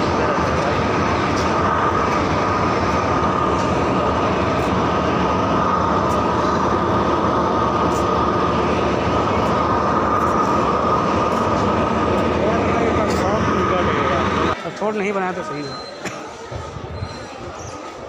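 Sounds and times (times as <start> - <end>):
high whine: 0.0 - 14.9
train rumbling hum: 0.0 - 15.6.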